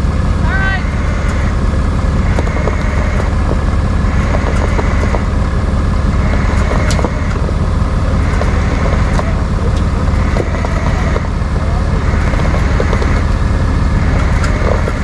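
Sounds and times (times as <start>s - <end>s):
truck engine running: 0.0s - 15.0s
clicks and rattles: 6.1s - 13.4s.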